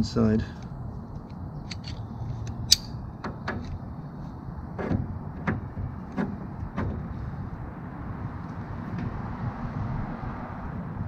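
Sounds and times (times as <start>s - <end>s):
pliers clicking on metal: 1.7s - 2.9s
dull metal clunks: 4.7s - 7.1s.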